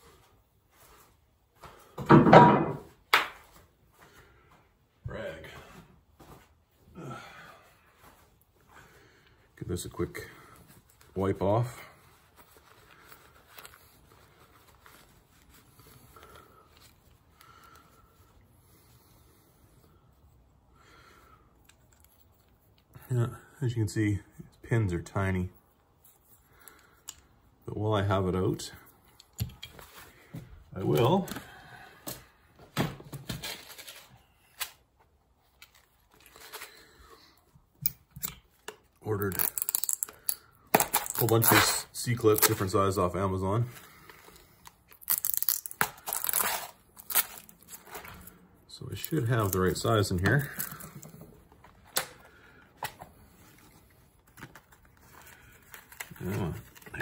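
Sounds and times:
small metal parts clicking: 39.3s - 40.4s.

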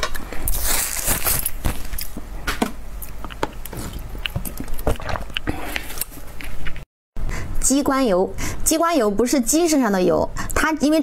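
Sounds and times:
chewing with small clicks: 3.0s - 6.1s
biting food: 3.0s - 6.8s.

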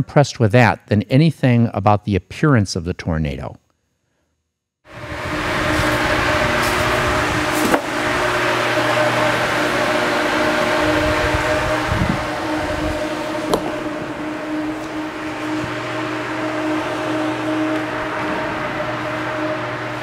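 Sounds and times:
exhaust fan rushing air and hum: 4.9s - 20.0s.

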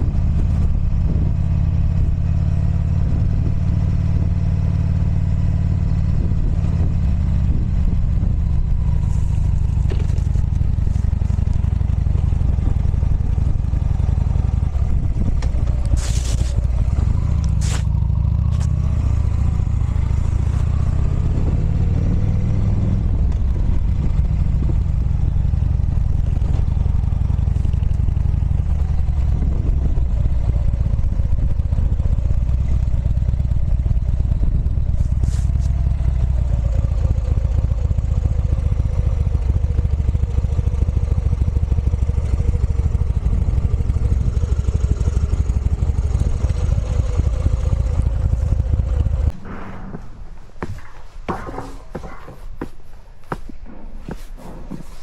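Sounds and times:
wind rumble on microphone: 0.0s - 37.2s
motorcycle engine revving: 0.0s - 52.3s.

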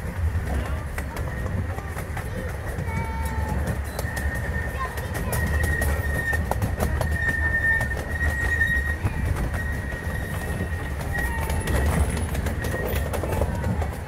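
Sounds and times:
railway cars rumbling: 0.0s - 14.0s
wheels clicking on track: 0.0s - 14.0s
high wheel squeal: 3.6s - 13.7s.

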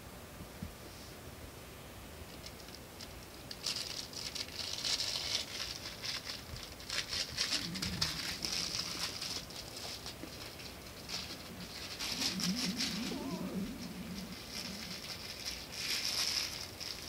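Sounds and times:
puppy scratching a blanket: 3.4s - 17.0s.

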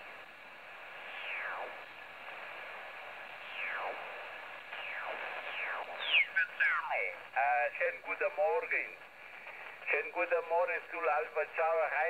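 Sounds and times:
radio band hiss: 0.0s - 12.0s
falling radio tones: 1.0s - 7.4s.

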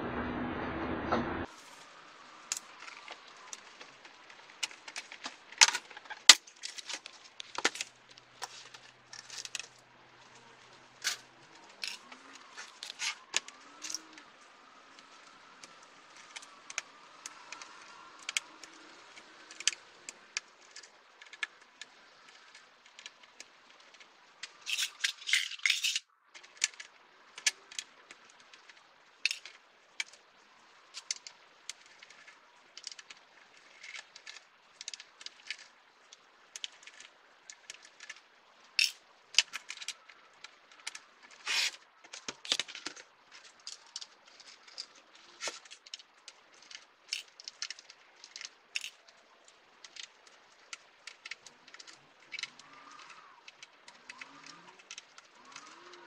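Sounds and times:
screws and tools clicking on metal: 24.5s - 26.0s, 40.9s - 43.0s.

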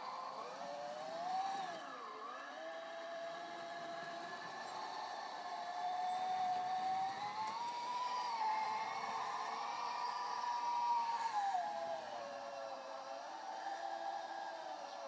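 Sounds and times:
toy vehicle motors whining: 0.0s - 15.0s.

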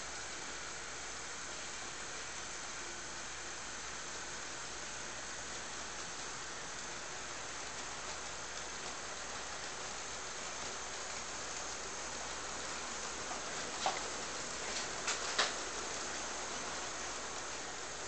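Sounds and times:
model train wheels rolling: 5.1s - 18.0s.

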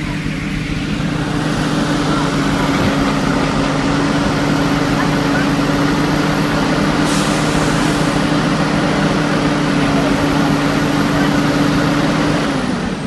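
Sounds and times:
high whine: 0.0s - 8.2s
diesel engine running: 0.0s - 13.0s.

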